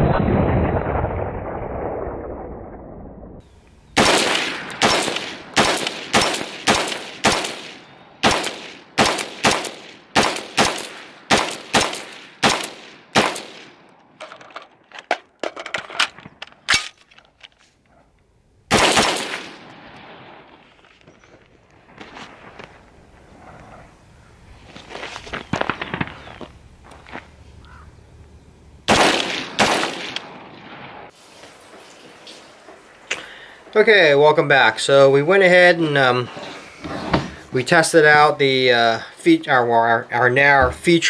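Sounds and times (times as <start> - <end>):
rifle gunshots: 4.0 - 13.8, 18.7 - 20.6, 28.9 - 31.1.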